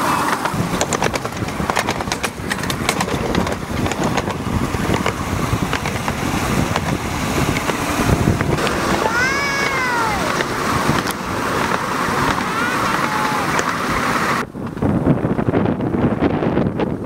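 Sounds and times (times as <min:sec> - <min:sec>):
miniature train clattering on rails: 0:00.0 - 0:15.2
wind on microphone: 0:00.0 - 0:17.0
toddler squealing: 0:09.0 - 0:10.4, 0:12.4 - 0:13.6.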